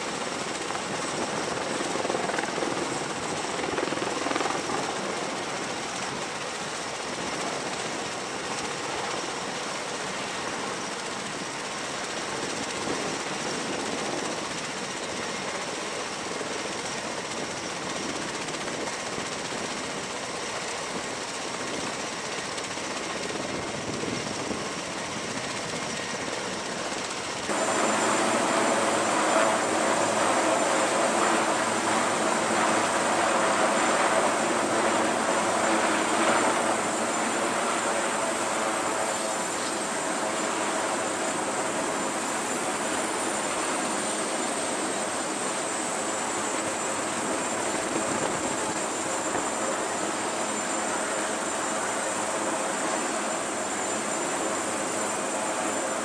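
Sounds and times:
helicopter rotors turning: 0:00.0 - 0:56.0
tiltrotor aircraft rotor and engine rush: 0:00.0 - 0:56.0
high turbine whine: 0:20.9 - 0:56.0.

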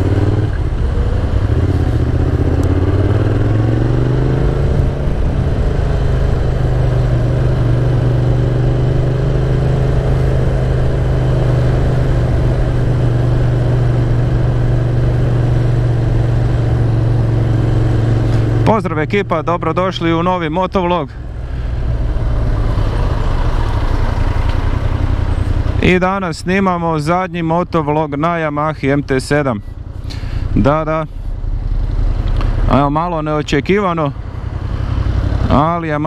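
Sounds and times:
motorcycle engine accelerating: 0:00.0 - 0:28.5, 0:29.6 - 0:36.0.

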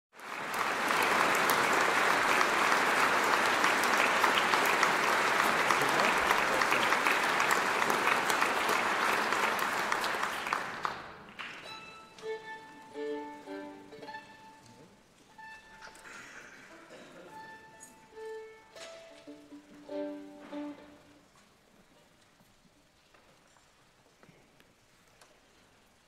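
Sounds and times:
audience applauding: 0:00.2 - 0:11.8
short violin notes: 0:11.6 - 0:16.6, 0:17.2 - 0:21.3.

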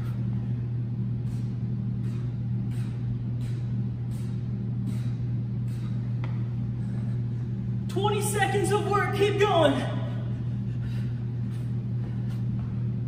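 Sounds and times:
low machine hum: 0:00.0 - 0:13.0
man breathing hard: 0:10.4 - 0:12.6.

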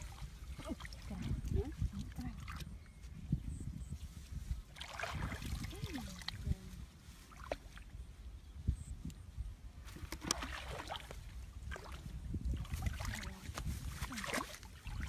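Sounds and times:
wind buffeting the microphone: 0:00.0 - 0:15.0
leaves and branches rustling: 0:11.1 - 0:14.9.

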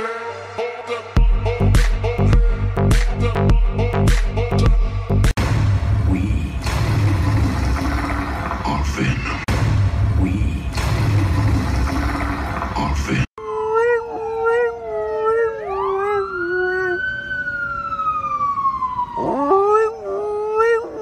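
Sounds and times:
dog howling: 0:13.4 - 0:17.2, 0:19.1 - 0:21.0
siren wailing: 0:13.4 - 0:21.0.

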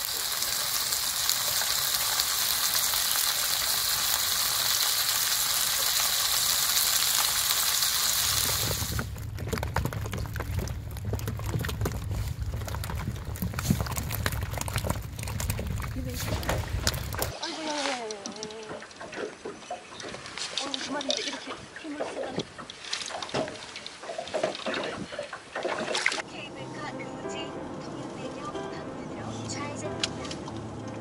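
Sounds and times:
fish sizzling on grill: 0:00.0 - 0:09.3
low steady hum: 0:08.2 - 0:17.4.

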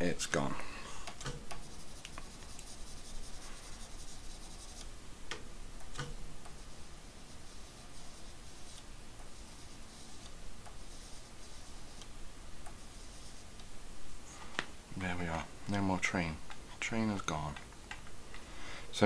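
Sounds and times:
mouse scratching on desk: 0:01.6 - 0:04.9, 0:06.5 - 0:12.1, 0:12.7 - 0:13.6.

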